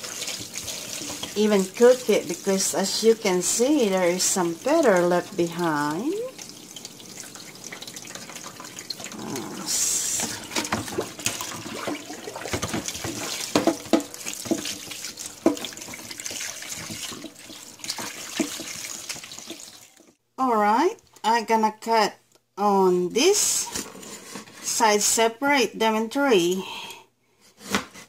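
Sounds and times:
tap running into sink: 10.2s - 19.8s
wet splashes and knocks: 10.2s - 20.0s.

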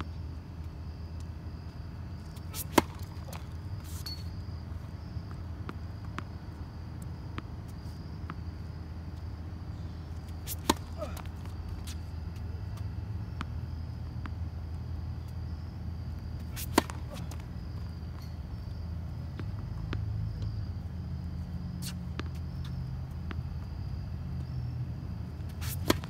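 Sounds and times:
low background hum: 0.0s - 26.0s
tennis racket hitting ball: 2.4s - 4.0s, 10.3s - 11.4s, 16.4s - 17.7s, 25.5s - 26.0s.

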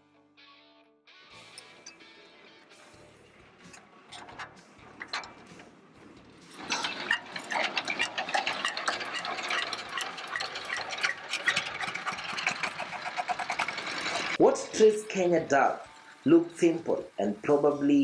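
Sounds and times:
diesel engine clattering: 3.6s - 14.4s
crank knocking: 3.7s - 5.8s, 6.5s - 14.4s.

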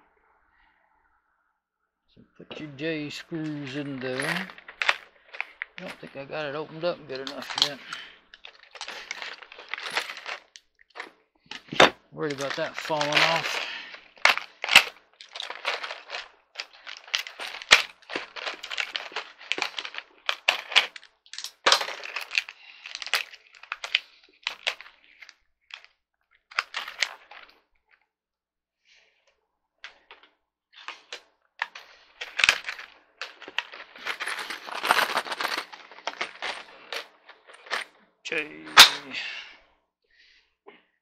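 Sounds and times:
packaging rustling and crinkling: 3.1s - 27.6s, 30.8s - 37.9s.

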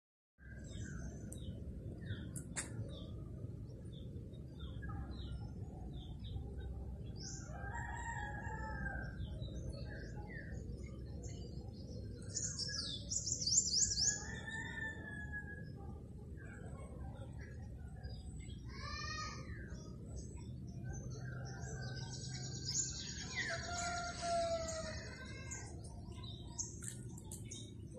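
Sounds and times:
birds chirping: 0.5s - 27.9s
rooster crowing: 14.2s - 15.6s, 23.4s - 25.1s.

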